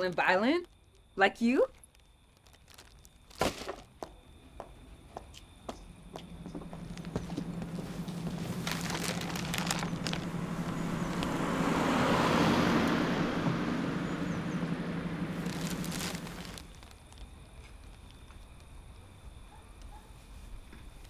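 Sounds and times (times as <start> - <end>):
steady low hum: 4.1 - 16.7.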